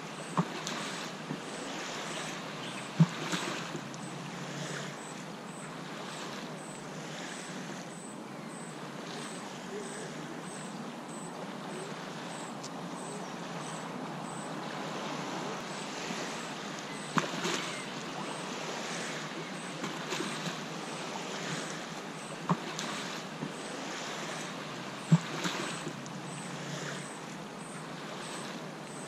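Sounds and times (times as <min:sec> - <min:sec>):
waves lapping on sandy shore: 0:00.0 - 0:29.0.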